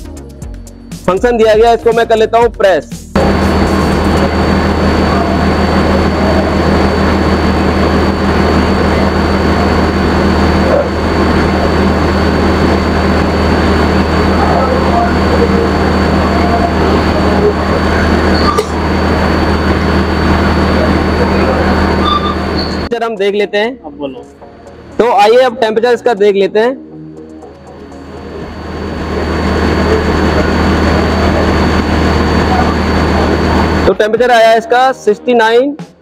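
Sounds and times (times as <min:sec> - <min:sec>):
espresso machine pump humming: 0:03.2 - 0:22.9, 0:28.0 - 0:33.9.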